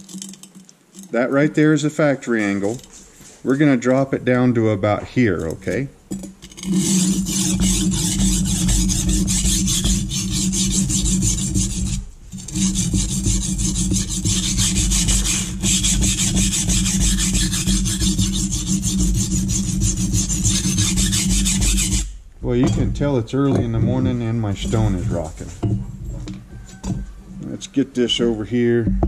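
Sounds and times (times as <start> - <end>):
stone rocking on its base: 22.6 - 27.2.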